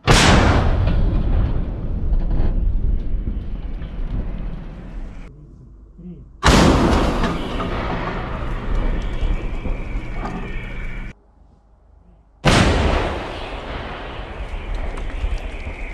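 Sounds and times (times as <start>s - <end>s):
artillery gun firing: 0.0s - 2.6s, 6.4s - 11.0s, 12.4s - 15.9s.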